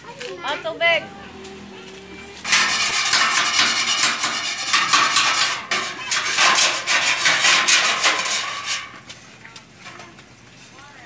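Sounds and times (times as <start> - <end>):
hand tool scraping sheet steel: 1.4 - 9.2.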